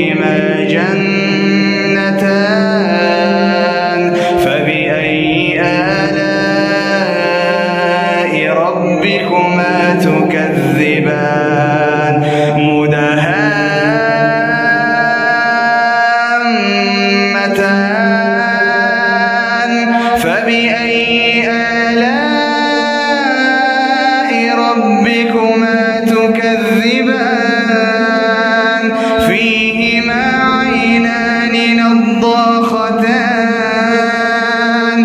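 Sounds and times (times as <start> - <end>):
man reciting melodically: 0.0 - 35.0
man breathing: 4.1 - 4.4, 12.2 - 12.6, 19.9 - 20.2, 28.9 - 29.2.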